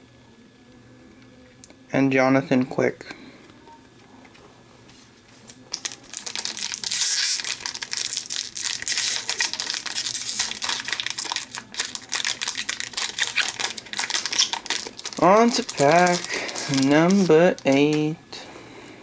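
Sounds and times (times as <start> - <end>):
wrapper crinkling and tearing: 5.5 - 18.1.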